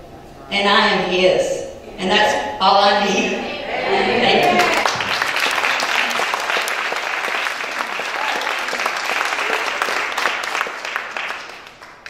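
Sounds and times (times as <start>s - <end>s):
congregation clapping: 4.4s - 12.0s.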